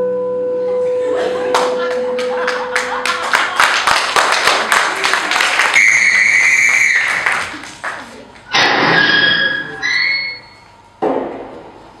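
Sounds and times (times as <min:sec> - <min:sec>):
audience applause: 0:01.2 - 0:08.5.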